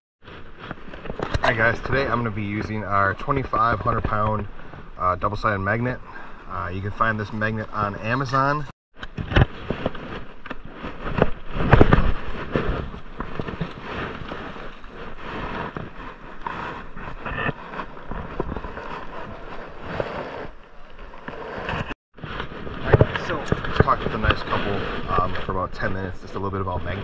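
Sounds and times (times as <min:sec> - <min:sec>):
rope rustling and knocking: 0:09.0 - 0:24.3.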